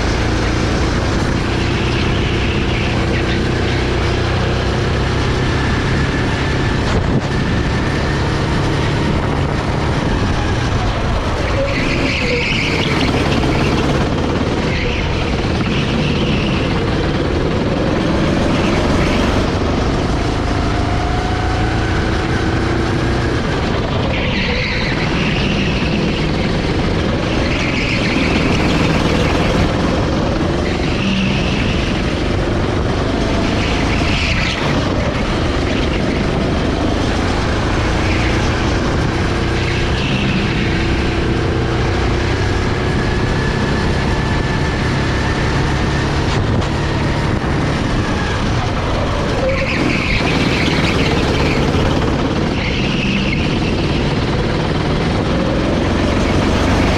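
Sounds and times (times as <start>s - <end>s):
go-kart engine: 0.0s - 56.9s
steady rushing noise: 0.0s - 56.9s.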